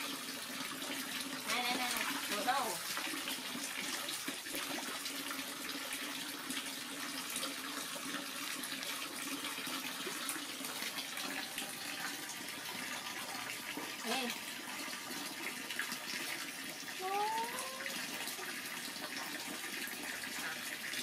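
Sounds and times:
water pouring into pool: 0.0s - 21.0s
monkey splashing in water: 1.4s - 3.9s.

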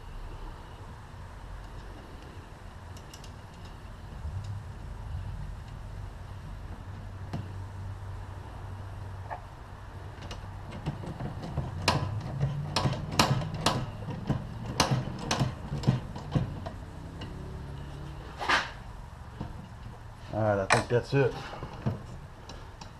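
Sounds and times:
steady low hum: 0.0s - 22.9s.

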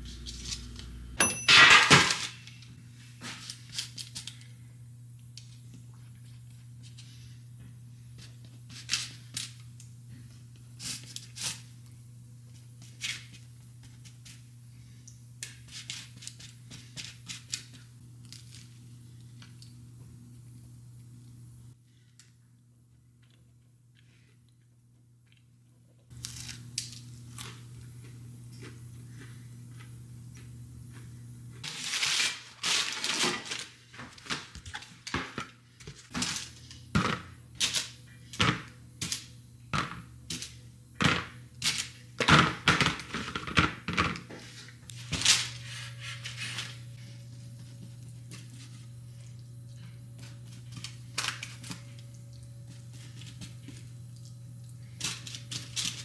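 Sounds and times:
steady low hum: 0.0s - 31.7s, 44.3s - 56.0s.

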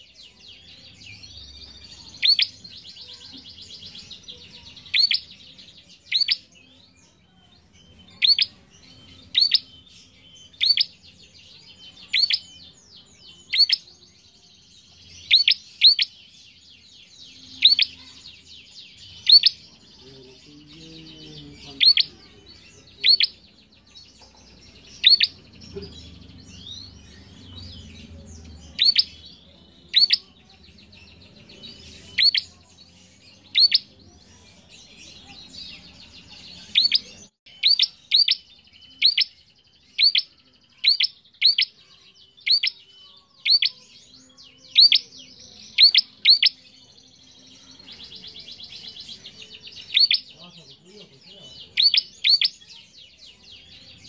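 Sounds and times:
rapid chattering bird trill: 2.0s - 2.6s, 4.1s - 5.3s, 6.0s - 6.5s, 8.2s - 8.5s, 9.2s - 9.8s, 10.5s - 11.0s, 12.0s - 12.6s, 13.4s - 13.9s, 15.1s - 16.1s, 17.4s - 18.2s, 18.9s - 19.7s, 21.3s - 23.5s, 24.8s - 30.3s, 31.7s - 35.2s, 36.6s - 41.8s, 42.4s - 44.0s, 44.7s - 46.6s, 48.0s - 50.3s, 51.6s - 52.7s
bird singing sharp high notes: 12.0s - 12.6s.

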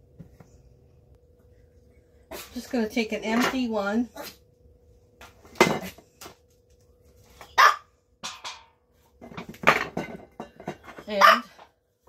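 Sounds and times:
dog barking: 7.6s - 7.9s, 11.2s - 11.5s.

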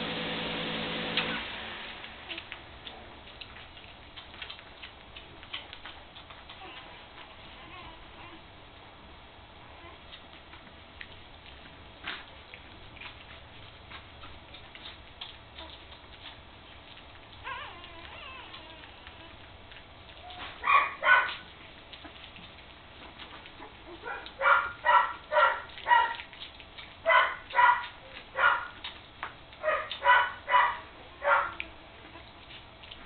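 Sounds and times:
puppy whining: 2.2s - 8.5s, 9.6s - 10.2s, 12.1s - 28.9s, 29.6s - 33.0s
puppies yelping: 14.7s - 22.6s, 23.3s - 28.9s, 29.6s - 33.0s.

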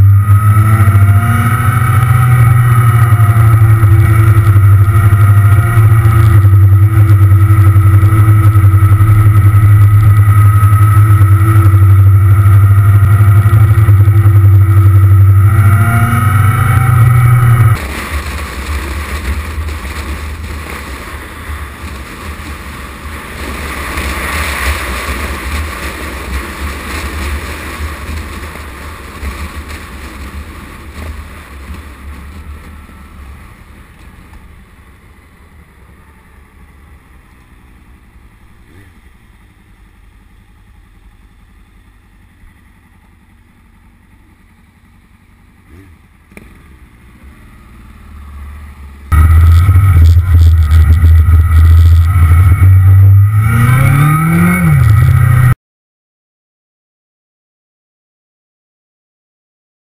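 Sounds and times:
motorcycle engine running: 0.0s - 55.6s.

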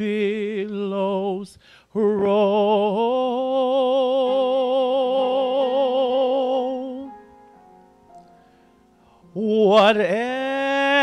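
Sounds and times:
man singing a hymn: 0.0s - 7.2s, 9.2s - 11.0s
grand piano accompaniment: 2.1s - 11.0s.

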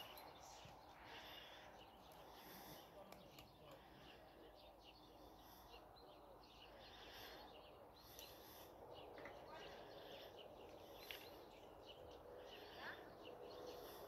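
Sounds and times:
songbirds chirping and trilling: 0.0s - 14.0s.

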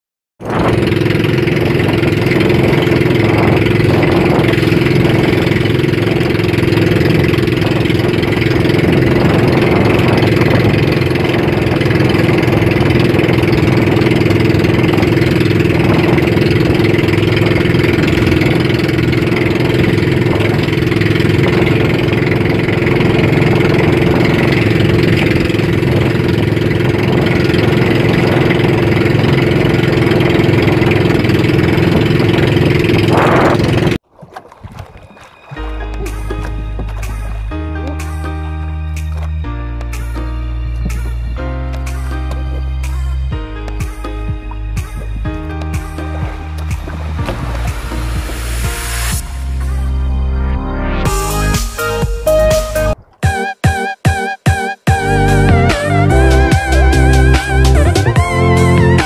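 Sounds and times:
boat engine running steadily: 0.4s - 53.5s, 54.9s - 59.0s
water splashing along hull: 0.4s - 54.2s, 54.9s - 59.0s.

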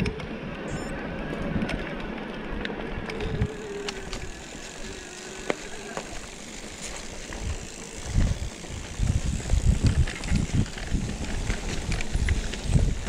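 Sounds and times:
bike parts rattling: 3.0s - 13.0s.

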